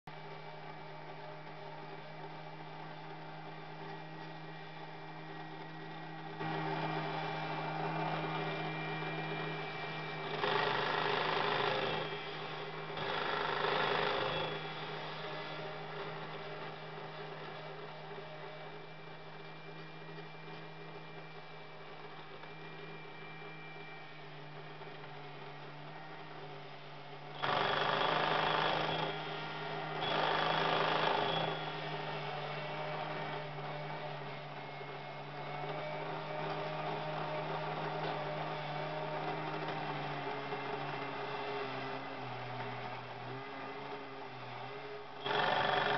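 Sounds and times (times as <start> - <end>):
toy motor whirring: 6.4 - 18.6, 27.3 - 44.6, 45.2 - 45.9.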